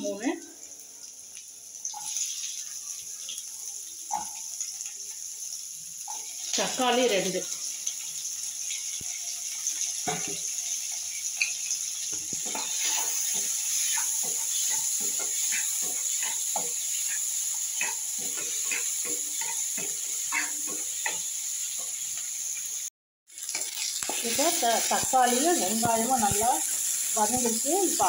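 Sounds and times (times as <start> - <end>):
onions sizzling in hot oil: 0.0 - 28.0
spatula scraping and tapping pan: 10.0 - 10.5, 11.3 - 22.3, 23.5 - 27.8.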